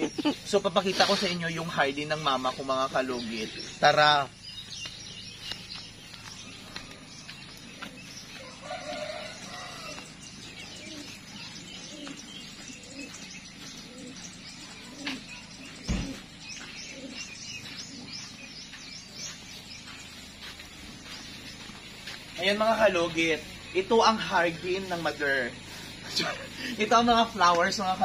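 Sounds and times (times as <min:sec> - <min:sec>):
chickens calling: 0:00.0 - 0:28.0
small birds chirping: 0:00.0 - 0:28.0
sharp thump: 0:15.8 - 0:16.2.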